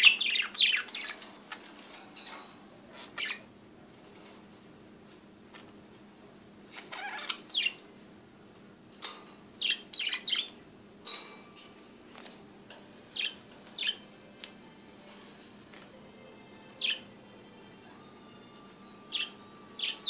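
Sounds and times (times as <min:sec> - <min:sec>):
budgerigars chirping: 0:00.0 - 0:01.2, 0:02.9 - 0:03.5, 0:06.8 - 0:07.9, 0:09.6 - 0:10.6, 0:13.1 - 0:14.1, 0:19.1 - 0:20.0
faint steady hum: 0:00.0 - 0:20.0.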